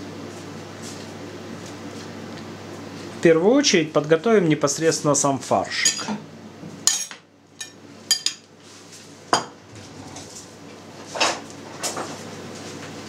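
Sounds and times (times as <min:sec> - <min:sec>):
plates clinking on table: 0:09.3 - 0:09.6.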